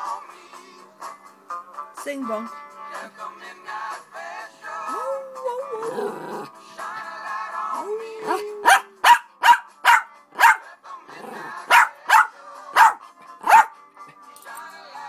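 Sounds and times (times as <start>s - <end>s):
song playing: 0.0s - 15.0s
small dog barking: 8.6s - 10.7s, 11.6s - 13.8s.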